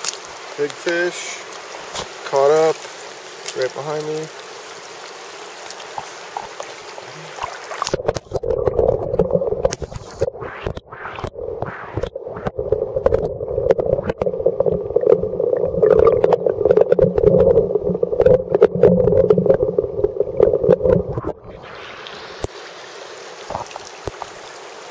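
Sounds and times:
hiss of running water: 0.0 - 24.9
muffled underwater rushing water: 0.0 - 24.9
knocks and bumps underwater: 6.0 - 21.5.

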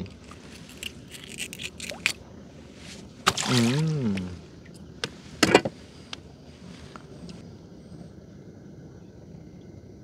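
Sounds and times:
person humming: 3.5 - 4.4.

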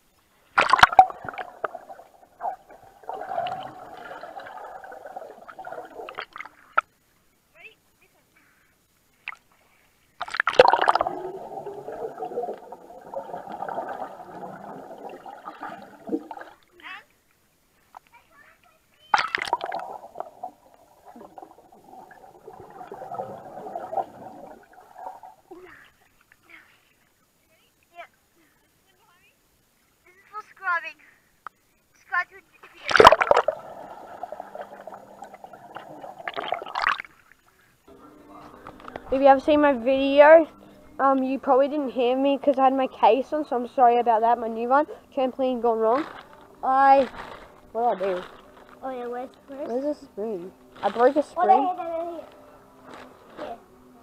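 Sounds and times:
muffled underwater bubbling: 0.6 - 6.9, 10.2 - 16.6, 19.2 - 25.6, 32.8 - 37.1
underwater splashing knocks: 0.6 - 6.9, 10.2 - 16.6, 32.9 - 37.1.

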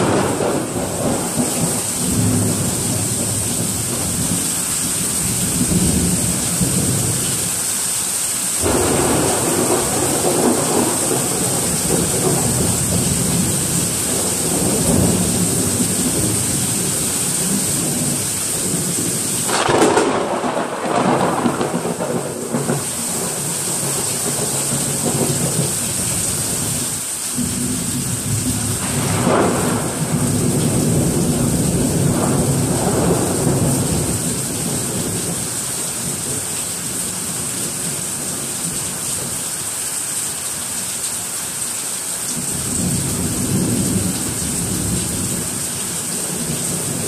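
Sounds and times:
thunder: 0.0 - 7.4, 8.6 - 26.7, 27.4 - 36.4, 42.4 - 47.0
heavy rain pouring: 0.0 - 47.0.

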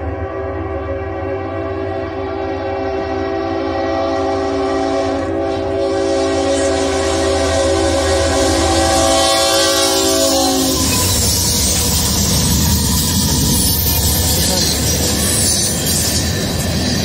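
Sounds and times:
locomotive air horn blast: 0.0 - 11.2
locomotive engine and wheel noise: 0.0 - 17.0.

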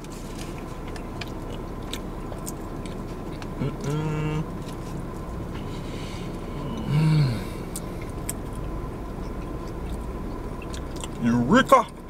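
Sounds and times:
man chewing food: 0.0 - 12.0
man humming mmm: 3.6 - 4.5, 6.4 - 7.8.

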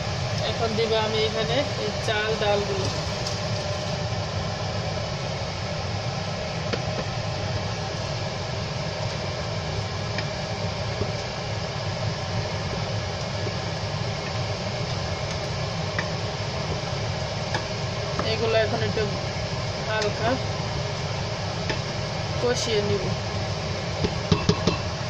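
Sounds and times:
fan-like rushing hum: 0.0 - 25.0
wooden spatula tapping pot: 24.1 - 24.8.

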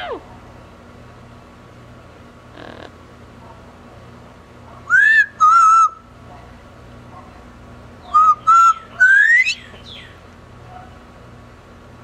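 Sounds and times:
parrot whistling: 4.9 - 6.0, 8.0 - 10.0.

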